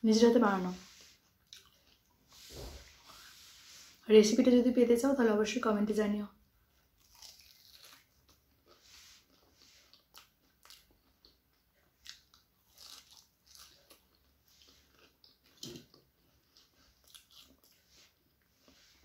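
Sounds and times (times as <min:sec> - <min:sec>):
crunching and chewing: 0:01.4 - 0:02.3, 0:06.8 - 0:18.9.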